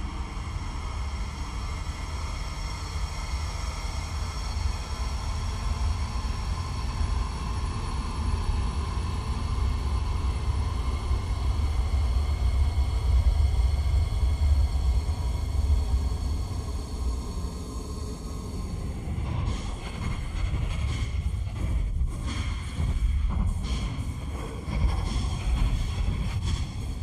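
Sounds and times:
heavy low rumble: 0:13.5 - 0:27.0.

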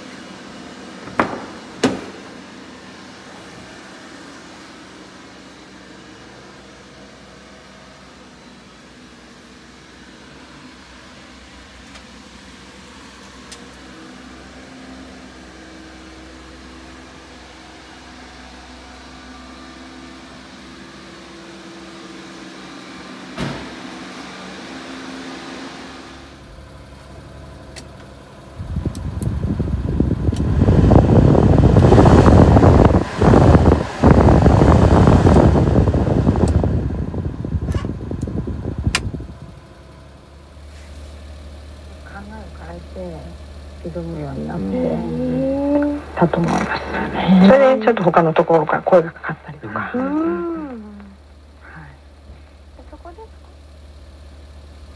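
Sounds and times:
blower fan air rushing: 0:28.4 - 0:41.2
low steady hum: 0:41.7 - 0:53.7.

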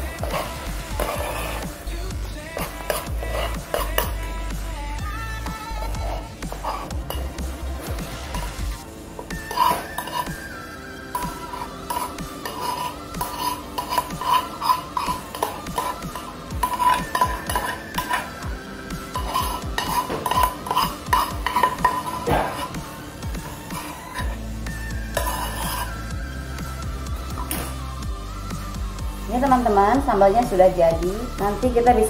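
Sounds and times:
spoon scraping against wok: 0:00.0 - 0:01.9, 0:02.5 - 0:04.3, 0:05.7 - 0:28.1
background music: 0:00.0 - 0:32.0.

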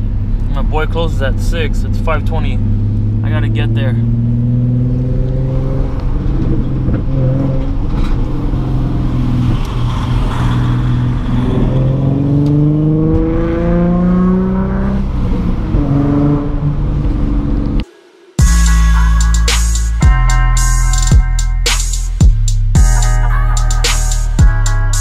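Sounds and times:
car engine pulling hard: 0:00.0 - 0:17.8
road noise: 0:00.0 - 0:25.0.

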